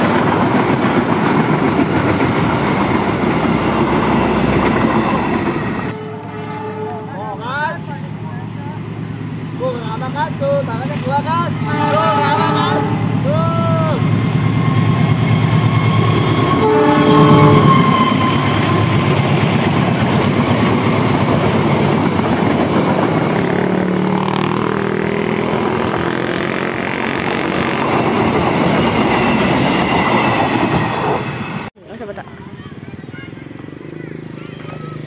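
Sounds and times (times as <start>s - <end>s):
train wheels rumbling and clacking: 0.0s - 6.0s, 13.1s - 31.7s
locomotive horn blast: 5.9s - 7.4s, 11.6s - 13.3s, 16.5s - 18.9s.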